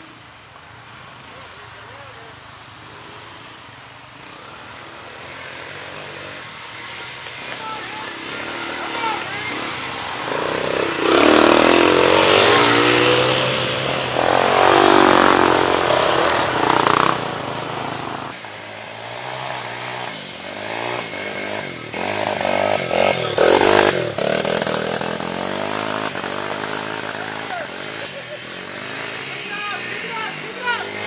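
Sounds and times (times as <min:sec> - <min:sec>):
dirt bike engine revving: 0:00.8 - 0:31.0.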